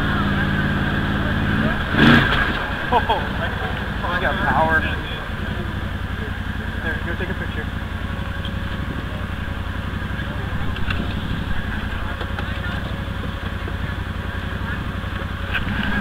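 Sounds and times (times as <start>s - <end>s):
engine running at low speed: 0.0s - 16.0s.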